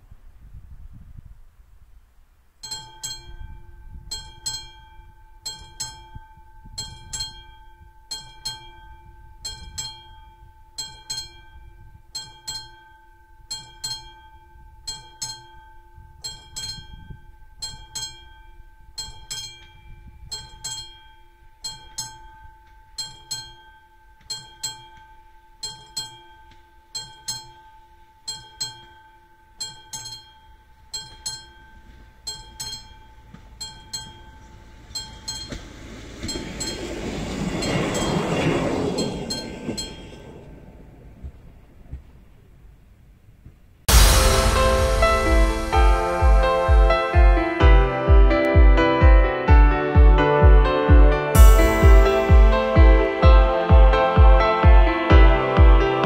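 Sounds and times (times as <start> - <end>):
level crossing bell ringing: 2.6 - 38.2, 51.3 - 54.2.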